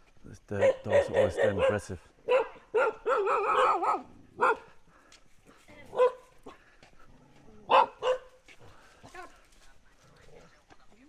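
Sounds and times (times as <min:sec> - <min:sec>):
dogs barking aggressively: 0:00.6 - 0:04.8, 0:05.9 - 0:06.6, 0:07.6 - 0:08.4.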